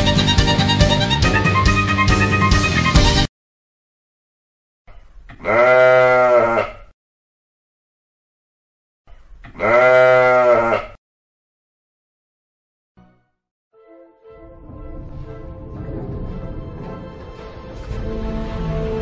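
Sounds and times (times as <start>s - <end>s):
animal bleating: 5.3s - 6.9s, 9.4s - 11.0s.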